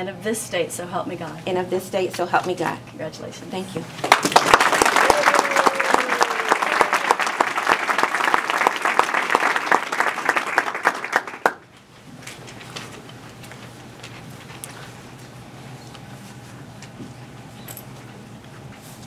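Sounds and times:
audience applauding: 4.0 - 11.6.

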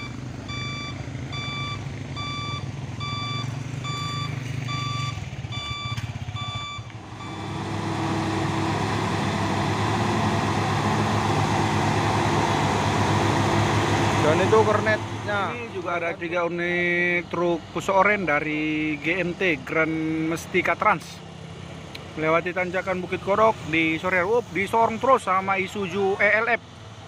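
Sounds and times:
truck reversing alarm beeping: 0.0 - 15.8
diesel engine idling: 0.0 - 27.0
truck engines under load: 0.0 - 27.0.

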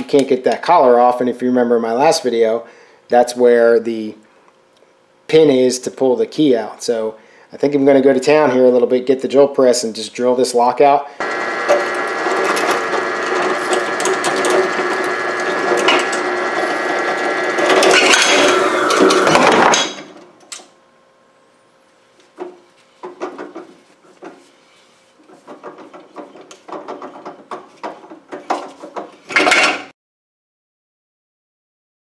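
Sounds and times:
drill press drilling metal: 11.2 - 20.1.

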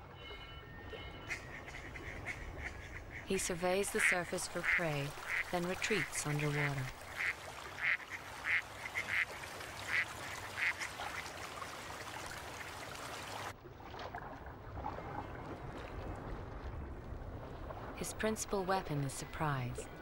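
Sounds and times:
ducks quacking: 1.3 - 11.3.

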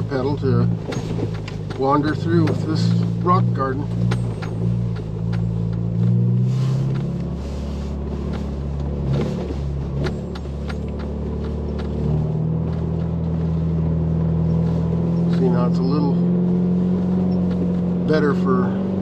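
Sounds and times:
engine running at low revs: 0.0 - 19.0
knocks and clicks: 8.3 - 13.4.

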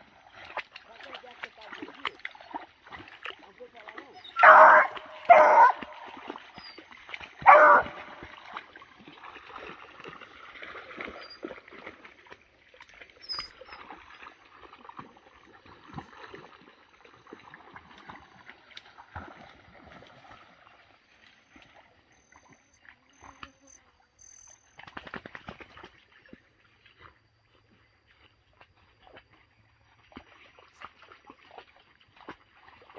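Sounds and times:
splashing in shallow water: 0.0 - 32.9
dog barking: 4.3 - 6.2, 7.4 - 8.3.

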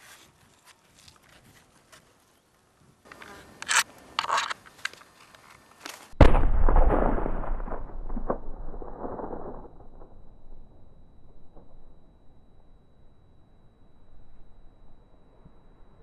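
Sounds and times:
scattered cracks: 3.1 - 12.0
explosion blast and roar: 6.2 - 10.4.

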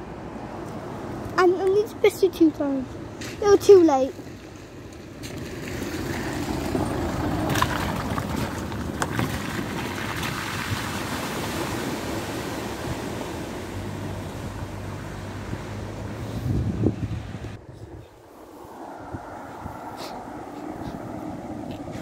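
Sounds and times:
vehicle splashing through water: 4.4 - 17.6.

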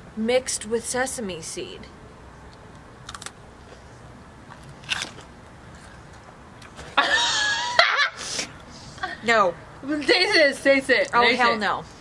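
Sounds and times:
person chewing crunchy snack bar: 3.0 - 3.3, 4.6 - 5.3.

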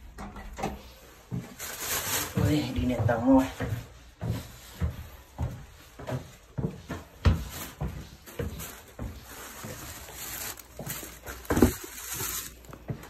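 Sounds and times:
plastic bag rustling: 0.8 - 3.0, 7.2 - 13.0
footsteps on wooden stairs: 2.4 - 13.0.

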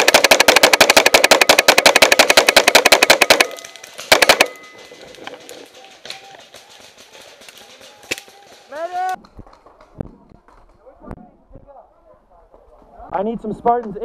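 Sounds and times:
paintball marker rapid firing: 0.0 - 4.8.

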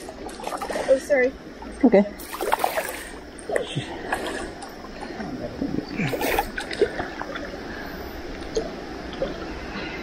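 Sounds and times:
small splashes: 0.0 - 1.2, 2.2 - 5.2
stream running over stones: 0.0 - 9.5.

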